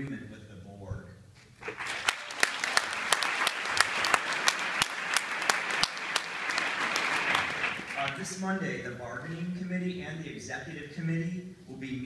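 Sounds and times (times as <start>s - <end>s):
audience applauding: 1.6s - 8.2s
sharp nearby claps: 1.6s - 8.2s.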